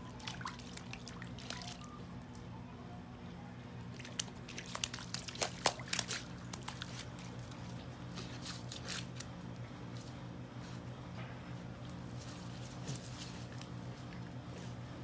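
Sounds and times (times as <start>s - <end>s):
steady low hum: 0.0s - 15.0s
paws squelching in wet mud: 3.9s - 9.2s.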